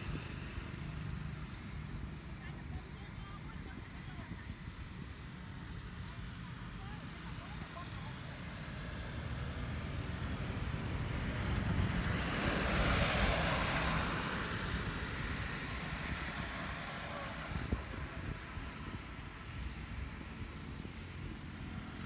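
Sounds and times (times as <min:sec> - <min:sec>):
wind rumble on microphone: 0:00.0 - 0:22.0
vehicle passing: 0:06.8 - 0:22.0.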